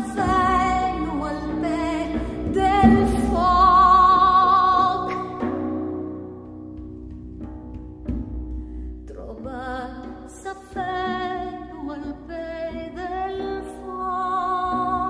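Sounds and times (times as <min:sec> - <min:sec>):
woman singing with vibrato: 0:00.0 - 0:05.7, 0:09.1 - 0:15.0
goblet drum beats: 0:00.0 - 0:11.8
string drum drone: 0:00.0 - 0:15.0.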